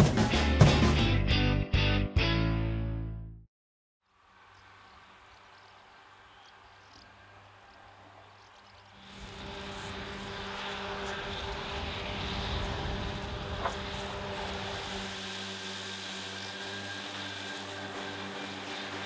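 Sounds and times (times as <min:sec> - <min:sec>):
mower discs whirring: 0:08.5 - 0:19.0.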